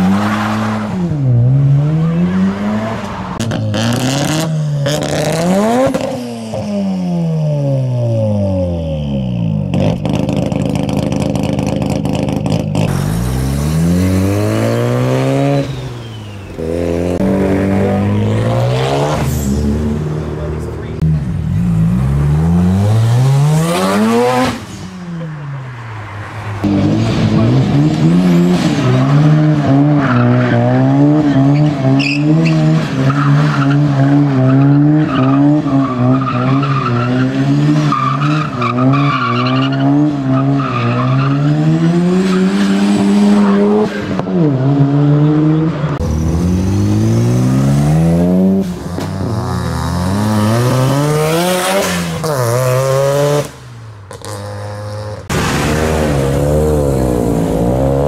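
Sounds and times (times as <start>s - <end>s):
car engine revving hard: 0.0s - 6.8s, 9.7s - 21.0s, 21.6s - 24.7s, 26.6s - 53.6s
tyre squeal: 31.3s - 32.6s.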